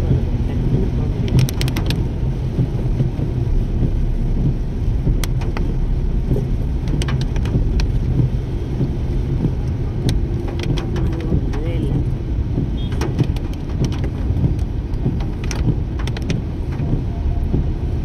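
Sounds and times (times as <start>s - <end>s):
car driving on wet road: 0.0s - 18.0s
sharp ticks: 6.8s - 17.8s.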